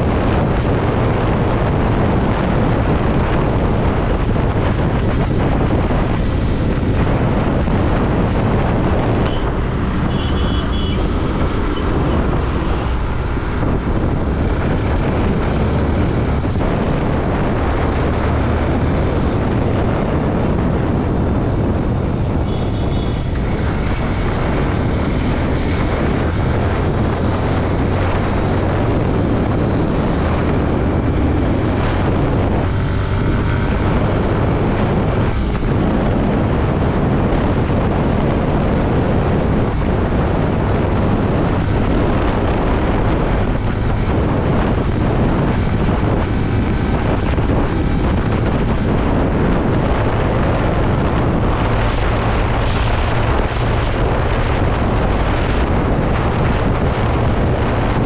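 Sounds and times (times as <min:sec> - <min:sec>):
motorcycle engine and tyre noise: 0:00.0 - 0:58.0
wind rushing over microphone: 0:00.0 - 0:58.0.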